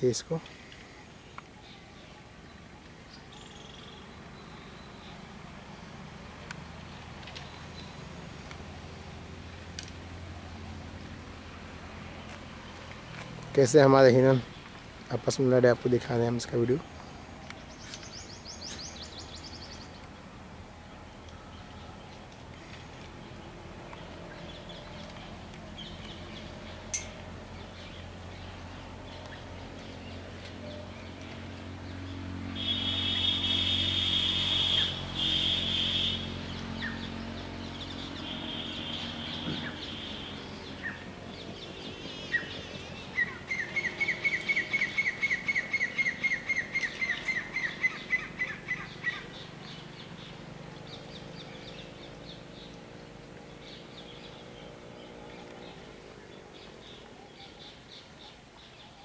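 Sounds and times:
faint outdoor background: 0.0s - 59.0s
bird trilling call: 32.5s - 37.0s, 38.1s - 49.5s.

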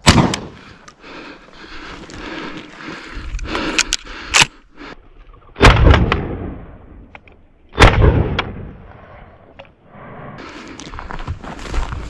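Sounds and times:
shotgun shots echoing: 0.0s - 0.6s, 5.6s - 6.8s, 7.8s - 9.1s.

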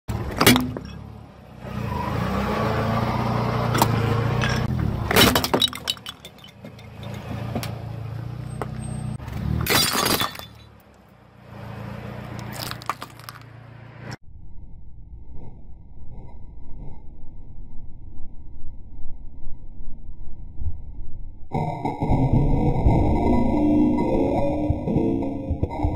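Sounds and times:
plastic and ceramic cracking: 12.4s - 13.5s.

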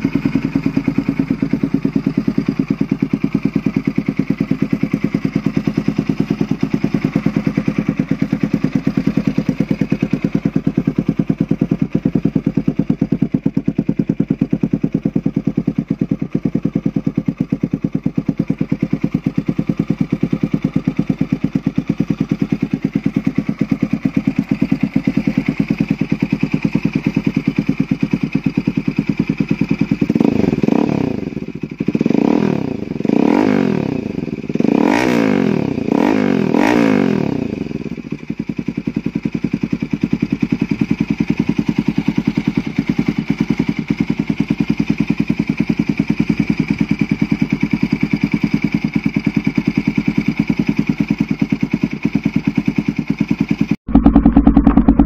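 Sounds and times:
motorcycle engine idling: 0.0s - 55.0s
throttle blips: 53.9s - 55.0s.

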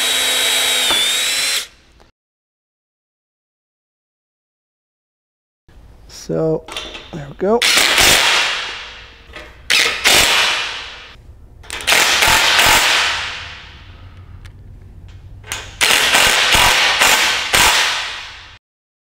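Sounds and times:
impact driver hammering: 0.0s - 1.7s, 11.7s - 13.7s, 15.8s - 18.4s.

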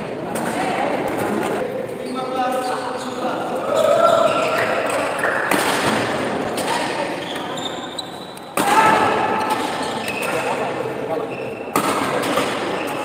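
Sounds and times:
badminton rackets striking shuttlecock: 4.9s - 7.5s, 8.3s - 10.7s, 11.7s - 13.0s.

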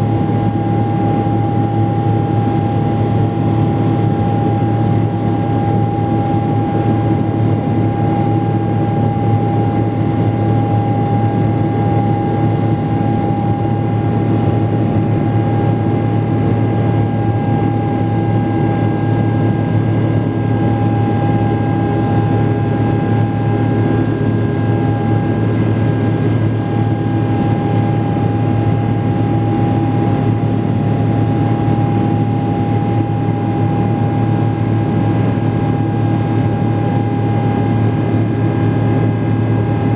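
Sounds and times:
high engine whine: 0.0s - 39.9s
jet engine drone in cabin: 0.0s - 39.9s.

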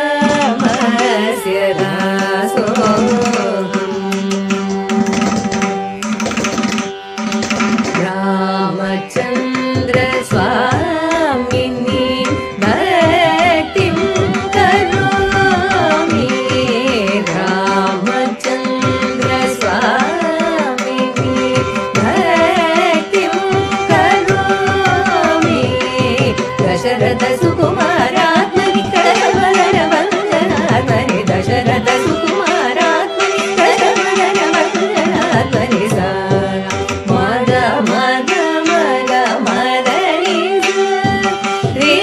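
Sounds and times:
woman singing: 0.0s - 5.9s, 7.8s - 42.0s
violin: 0.0s - 42.0s
hand drum strokes: 9.7s - 17.1s.

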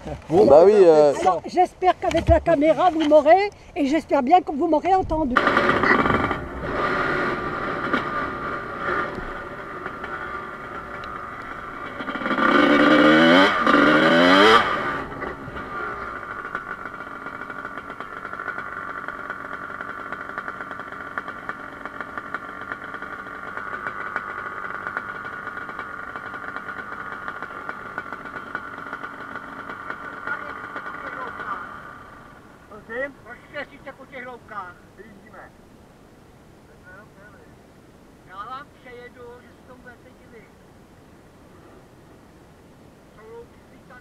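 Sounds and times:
dirt bike engine revving: 5.3s - 33.6s.

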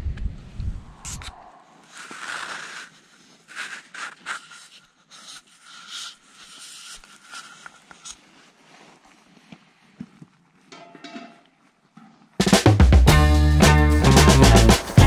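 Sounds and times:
tent fabric and sleeping bag rustling: 1.8s - 10.8s.

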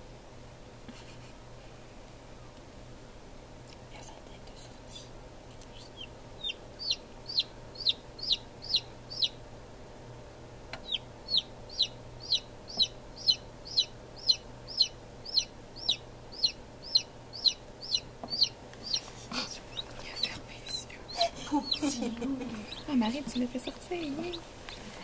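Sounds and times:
chick peeping: 5.7s - 9.4s, 10.7s - 25.0s.

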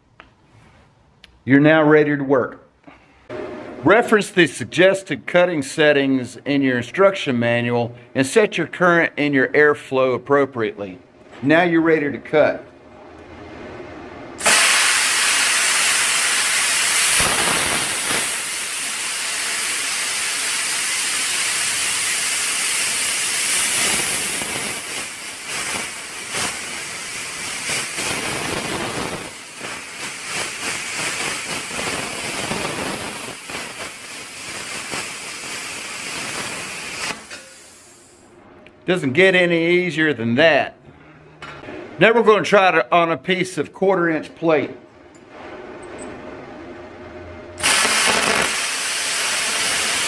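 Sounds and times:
plasma cutter hissing: 14.4s - 38.2s, 47.6s - 50.0s.

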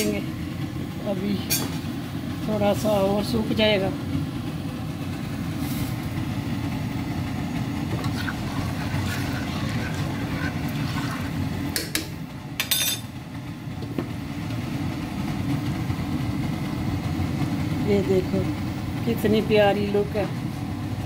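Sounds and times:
gas stove rumble: 0.0s - 21.0s
faint bubbling: 7.9s - 11.8s.

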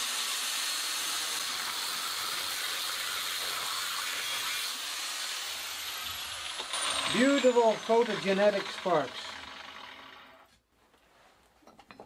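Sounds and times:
angle grinder cutting steel: 0.0s - 10.5s
grinder whine spinning down: 6.0s - 10.5s.

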